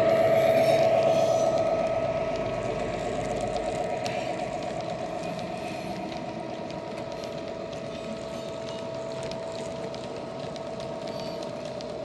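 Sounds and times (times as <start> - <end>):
model train engine drone: 0.0 - 12.0
wheels clicking on track: 0.0 - 12.0.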